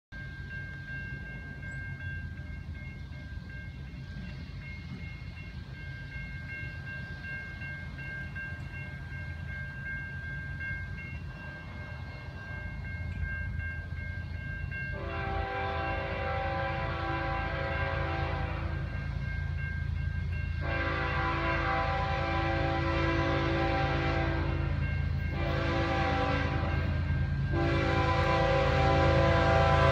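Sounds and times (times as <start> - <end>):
crossing warning bell ringing: 0.1 - 29.9
low train rumble: 0.1 - 29.9
locomotive air horn blasts: 14.9 - 19.0, 20.6 - 29.9.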